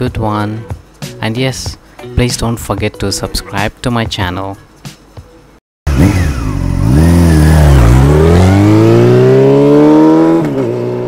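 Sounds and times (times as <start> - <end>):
motorcycle engine revving: 5.9 - 11.0.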